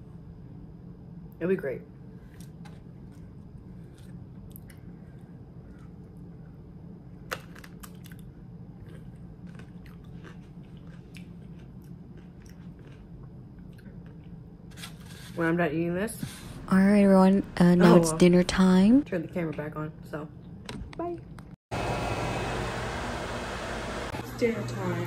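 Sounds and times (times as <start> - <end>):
steady low hum: 0.0 - 25.0
chewing and crunching food: 2.3 - 15.2.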